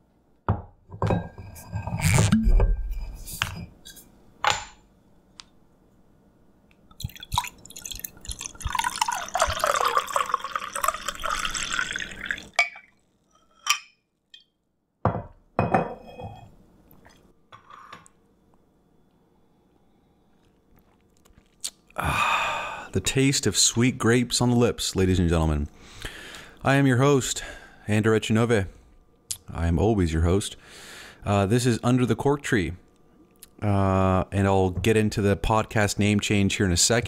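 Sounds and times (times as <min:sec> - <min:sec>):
wine pouring into glass: 0:06.9 - 0:13.0.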